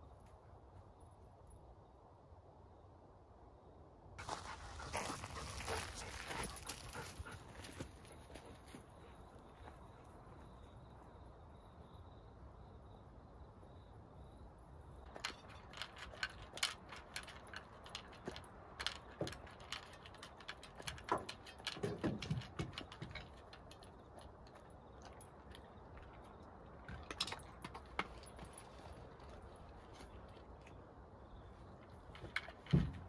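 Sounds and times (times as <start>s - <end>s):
light clicks and rattles: 15.0s - 30.8s, 31.4s - 33.0s.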